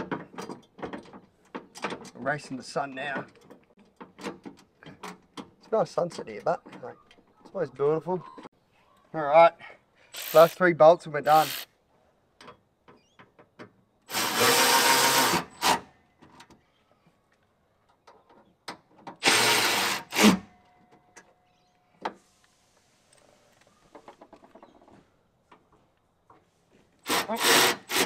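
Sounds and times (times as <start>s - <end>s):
cordless drill spinning bolts: 10.2s - 10.6s, 14.1s - 15.7s.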